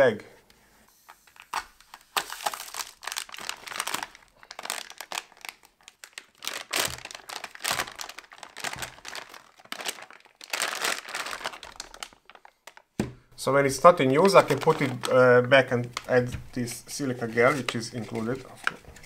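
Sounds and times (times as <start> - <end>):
plastic bag crinkling: 1.2 - 13.0, 13.7 - 16.3.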